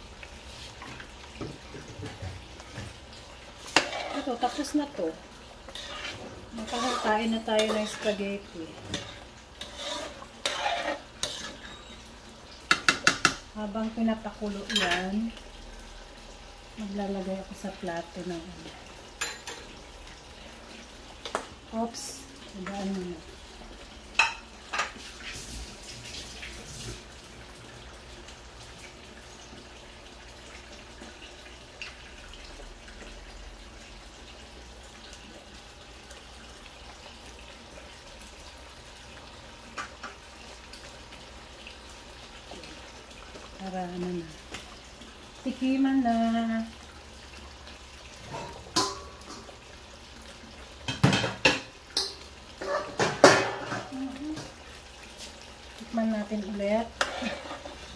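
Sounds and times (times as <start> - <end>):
metal utensils clinking on cookware: 5.9 - 12.1, 14.7 - 15.1
water trickling and dripping: 25.3 - 57.0.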